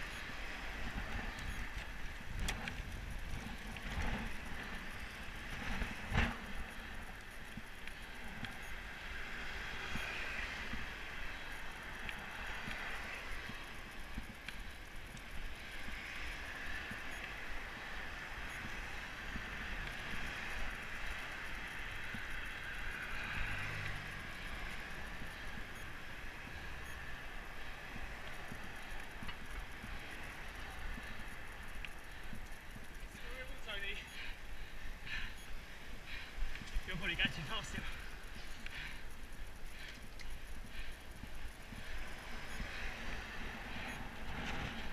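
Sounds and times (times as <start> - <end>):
wind rumbling on microphone: 0.0 - 33.2
traffic: 0.0 - 44.9.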